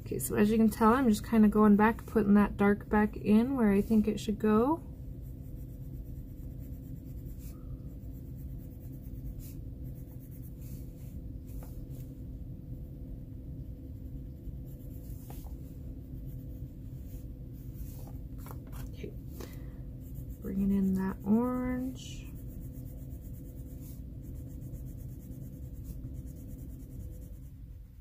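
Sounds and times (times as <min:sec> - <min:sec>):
steady low hum: 0:00.0 - 0:28.0
pencil scratching on paper: 0:05.2 - 0:12.1, 0:13.7 - 0:18.8, 0:19.5 - 0:28.0.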